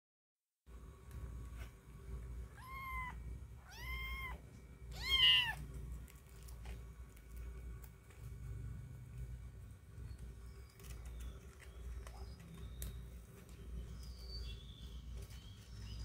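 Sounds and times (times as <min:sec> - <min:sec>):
cat meowing: 0:02.5 - 0:05.6.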